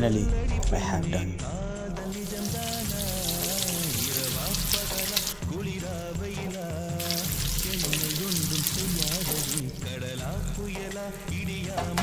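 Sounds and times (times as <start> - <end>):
background music: 0.0 - 12.0
food sizzling in oil: 2.0 - 5.4, 7.0 - 11.4.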